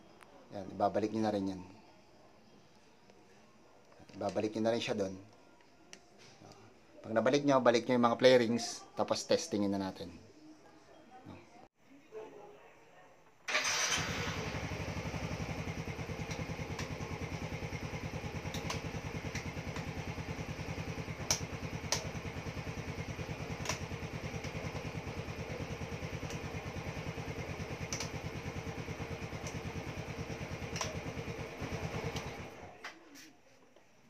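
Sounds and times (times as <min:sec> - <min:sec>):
scooter engine idling: 0:13.5 - 0:32.7
sharp clicks: 0:21.3 - 0:22.1, 0:27.8 - 0:28.2, 0:30.7 - 0:31.0.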